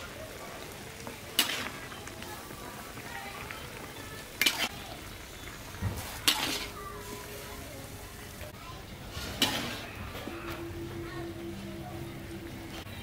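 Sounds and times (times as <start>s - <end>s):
food sizzling: 0.0s - 13.0s
metal spatula scraping wok: 4.4s - 4.8s, 6.0s - 6.8s, 9.1s - 10.7s.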